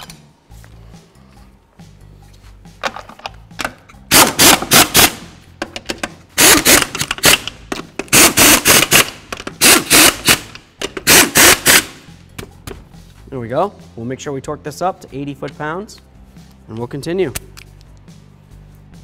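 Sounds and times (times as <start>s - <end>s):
impact wrench hammering: 4.1s - 12.0s.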